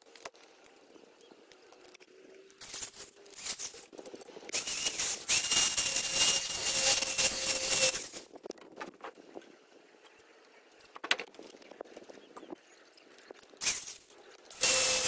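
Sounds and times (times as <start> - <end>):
electric drill drilling into steel: 4.5 - 8.2, 14.6 - 15.0.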